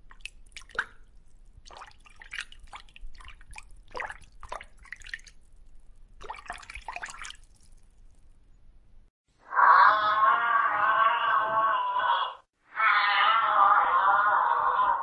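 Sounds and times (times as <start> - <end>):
water bubbling and plopping: 0.0 - 8.4.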